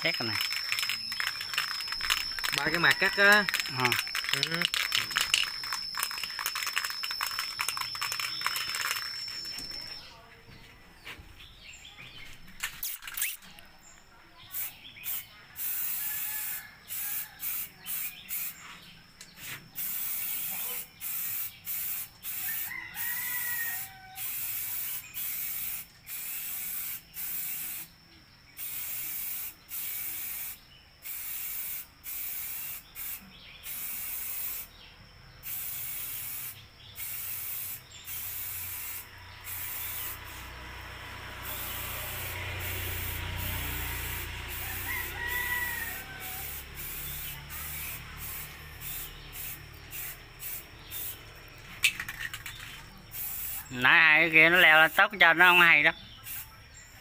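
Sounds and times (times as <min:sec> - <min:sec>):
spray paint can hissing: 0:00.0 - 0:10.0, 0:12.5 - 0:13.5, 0:14.4 - 0:28.0, 0:28.6 - 0:34.8, 0:35.4 - 0:56.5
rooster crowing: 0:02.5 - 0:04.1, 0:15.6 - 0:17.8, 0:22.2 - 0:24.8, 0:41.5 - 0:47.6.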